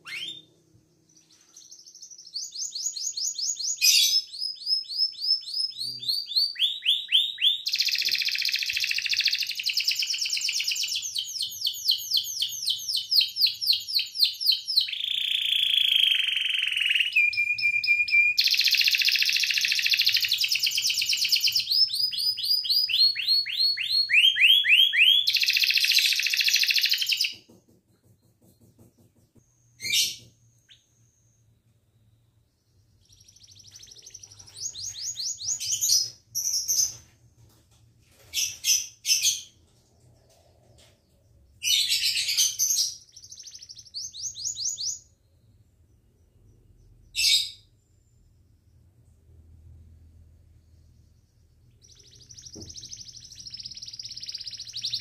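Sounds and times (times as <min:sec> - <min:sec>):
canary singing trills: 0:00.0 - 0:27.5, 0:32.5 - 0:37.0, 0:41.6 - 0:45.2, 0:51.0 - 0:55.0.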